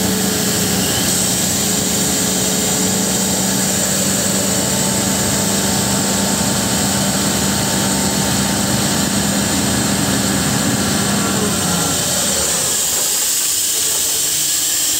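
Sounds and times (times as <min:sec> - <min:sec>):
diesel engine running: 0:00.0 - 0:14.9.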